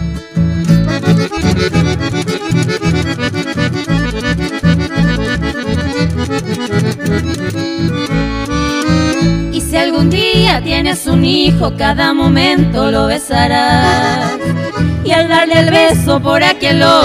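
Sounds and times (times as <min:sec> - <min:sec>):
instrumental band music: 0:00.0 - 0:11.4.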